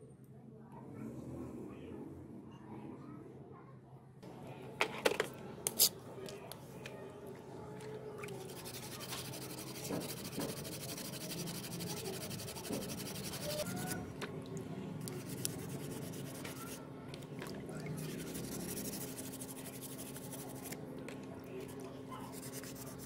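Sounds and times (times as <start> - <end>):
sponge scrubbing metal in water: 8.4 - 13.9, 15.1 - 16.8, 18.0 - 20.7.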